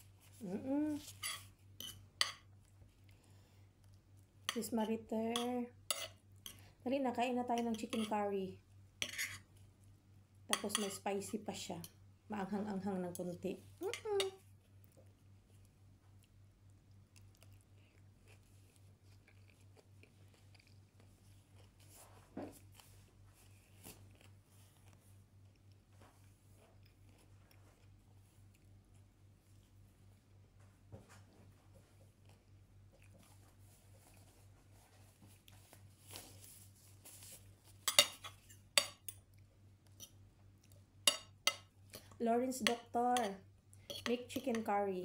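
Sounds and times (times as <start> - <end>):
person chewing: 14.6 - 22.0, 22.6 - 29.2
cutlery clinking on plate: 37.9 - 39.2.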